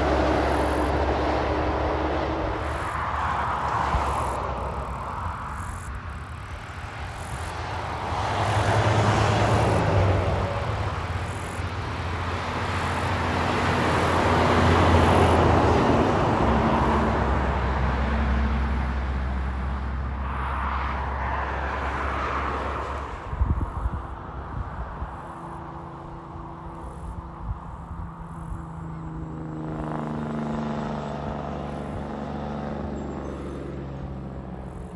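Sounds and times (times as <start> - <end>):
steady low hum: 0.0 - 16.6, 23.1 - 32.6
highway traffic passing: 0.0 - 34.9
truck engine drone and tyre noise: 0.0 - 34.9.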